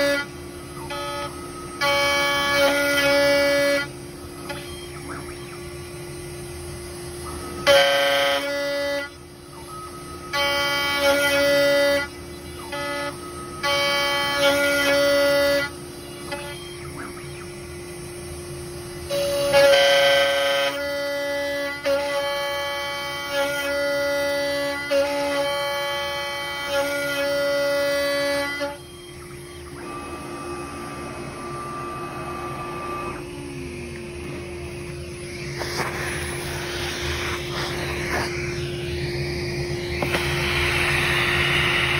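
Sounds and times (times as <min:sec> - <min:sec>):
bit cutting wood horn-like whine: 0:00.0 - 0:41.9
router spindle whine: 0:00.0 - 0:41.9
steady machine hum: 0:00.0 - 0:41.9
vacuum hose sucking wood chips: 0:34.1 - 0:41.9.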